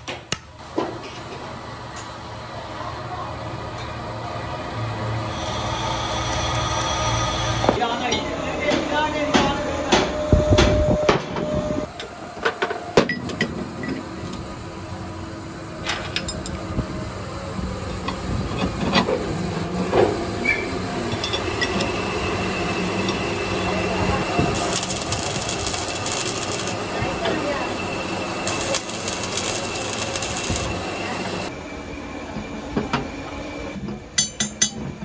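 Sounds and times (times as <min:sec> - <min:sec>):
machine hum: 0:13.6 - 0:32.1
arc welding crackle: 0:23.1 - 0:31.5.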